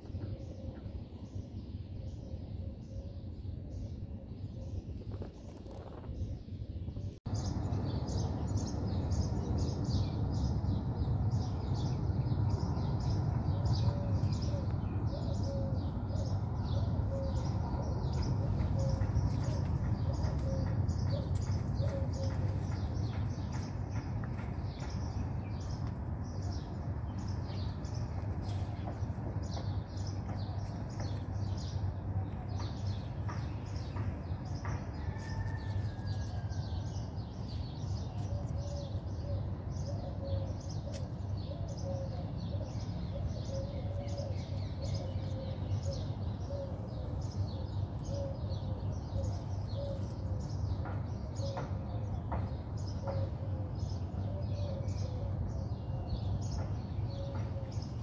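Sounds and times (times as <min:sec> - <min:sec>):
low outdoor rumble: 0:00.0 - 0:58.0
small birds chirping: 0:00.0 - 0:58.0.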